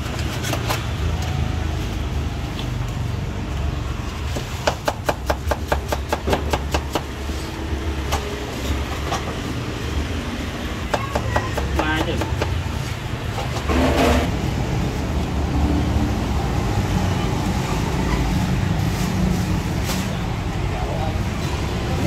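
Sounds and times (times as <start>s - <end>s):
low traffic rumble: 0.0s - 22.0s.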